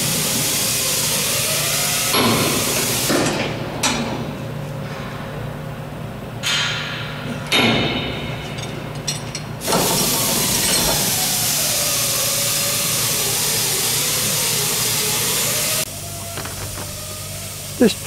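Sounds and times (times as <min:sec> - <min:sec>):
loud steady hiss: 0:00.0 - 0:03.5, 0:09.6 - 0:18.0
tools clanking on metal: 0:06.4 - 0:11.3.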